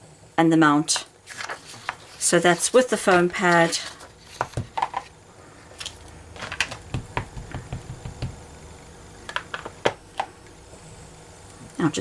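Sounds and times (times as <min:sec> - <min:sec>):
acrylic block tapping on surface: 0:06.9 - 0:08.4.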